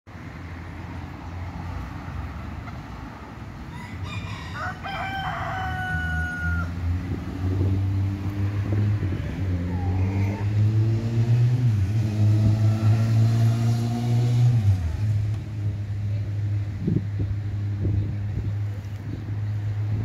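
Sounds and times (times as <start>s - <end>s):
rooster crowing: 3.7s - 6.8s
engine note rising: 6.4s - 18.0s.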